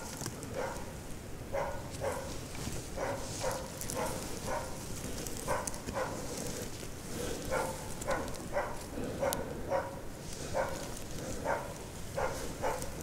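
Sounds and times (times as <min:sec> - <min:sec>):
dog barking: 0:00.0 - 0:00.9, 0:01.5 - 0:02.4, 0:03.0 - 0:04.8, 0:05.4 - 0:06.4, 0:07.4 - 0:13.0.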